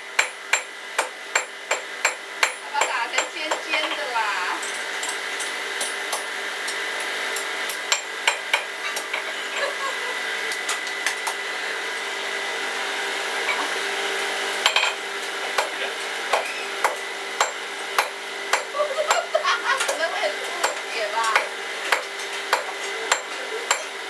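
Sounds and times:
steady hum: 0:00.0 - 0:24.0
hammer striking metal on anvil: 0:00.2 - 0:06.8, 0:14.6 - 0:15.0, 0:16.3 - 0:19.2, 0:20.6 - 0:23.9.

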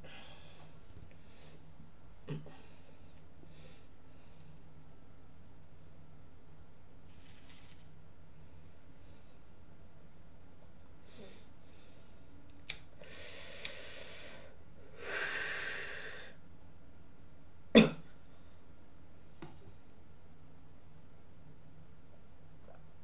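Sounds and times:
person breathing: 0:00.0 - 0:01.7, 0:02.5 - 0:04.7, 0:13.0 - 0:16.4.

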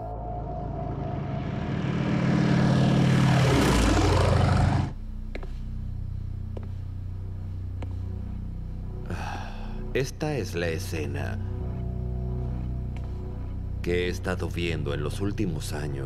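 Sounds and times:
propeller airplane engines droning: 0:00.0 - 0:09.0
low steady hum: 0:00.0 - 0:16.0.

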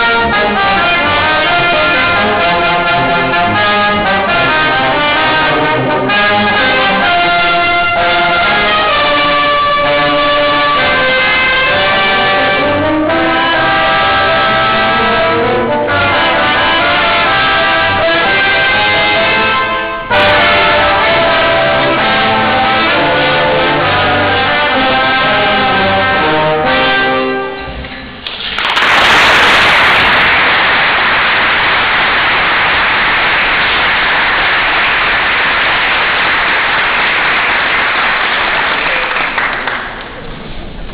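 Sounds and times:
brass quintet playing: 0:00.0 - 0:27.8
audience applauding: 0:28.2 - 0:40.3.

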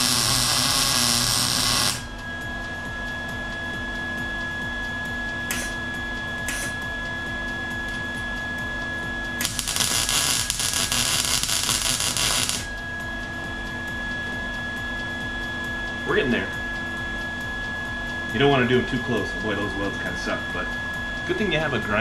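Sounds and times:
welding arc crackling: 0:00.0 - 0:02.1, 0:05.5 - 0:05.8, 0:06.4 - 0:06.7, 0:09.4 - 0:12.8
steady hum: 0:00.0 - 0:22.0.

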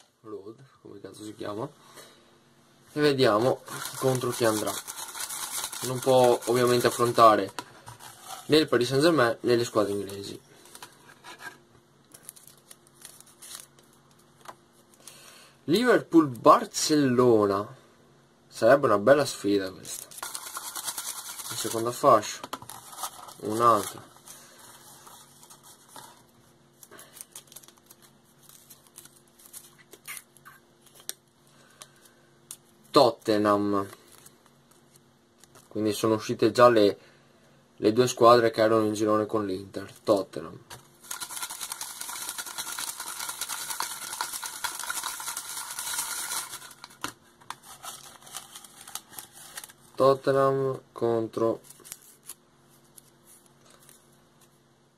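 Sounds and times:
faint steady hum: 0:00.0 - 0:54.9
paper rustling and crinkling: 0:03.3 - 0:09.0, 0:09.8 - 0:14.3, 0:19.8 - 0:30.2, 0:41.0 - 0:50.0, 0:51.6 - 0:54.6.

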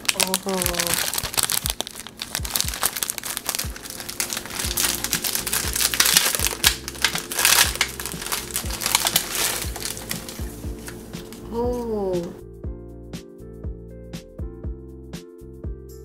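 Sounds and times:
plastic packet crinkling: 0:00.0 - 0:11.5
background music with soft beat: 0:00.0 - 0:16.0.

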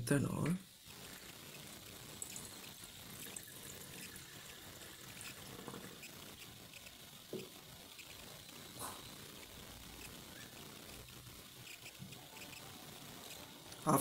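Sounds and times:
liquid trickling into glass flask: 0:02.1 - 0:06.0.

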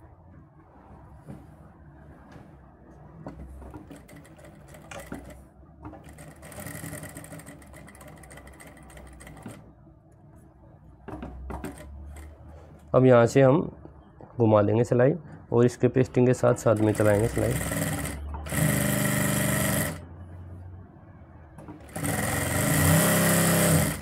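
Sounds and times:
sewing machine running: 0:03.8 - 0:05.4, 0:06.0 - 0:09.6, 0:16.6 - 0:20.0, 0:21.8 - 0:24.0.

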